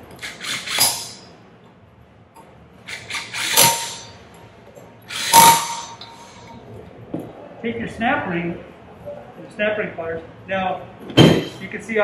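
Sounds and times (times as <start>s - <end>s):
cordless impact driver hammering: 2.9s - 4.1s, 5.1s - 6.1s.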